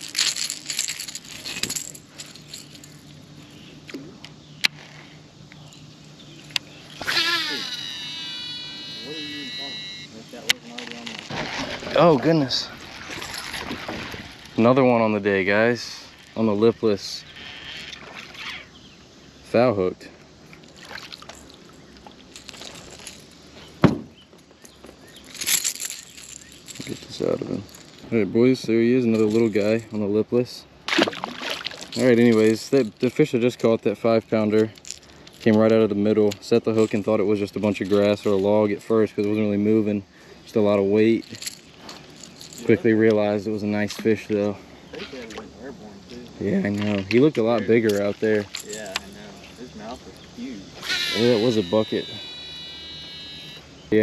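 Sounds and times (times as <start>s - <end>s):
small clicks and rustles: 0.0s - 3.2s, 34.6s - 35.6s
metallic rattling and jingling: 0.0s - 3.6s, 22.2s - 29.9s, 31.8s - 35.5s, 36.4s - 45.3s, 46.7s - 52.2s
faint steady hum: 0.0s - 54.0s
short scratchy burst: 7.0s - 10.2s.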